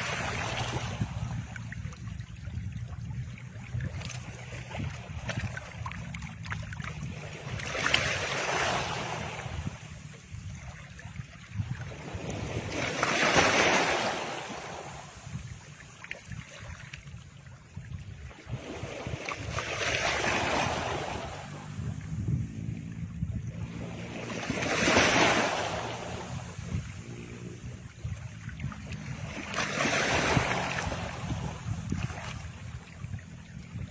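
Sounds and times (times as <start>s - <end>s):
low steady drone: 21.0s - 24.6s.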